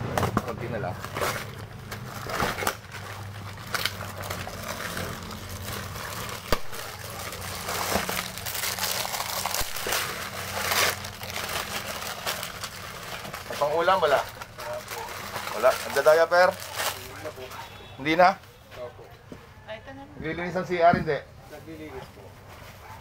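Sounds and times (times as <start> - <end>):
plastic bags crinkling: 0.5 - 17.6.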